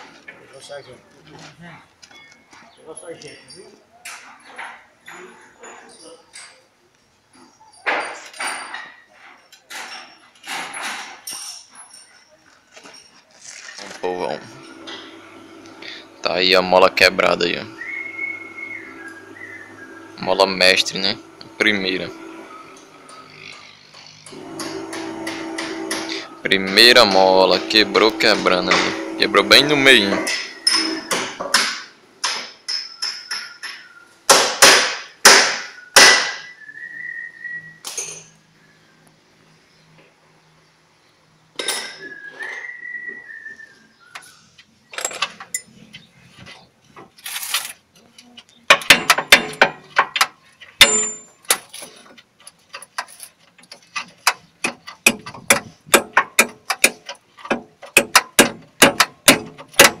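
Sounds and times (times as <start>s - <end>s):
hammer blows on metal: 24.5s - 31.4s.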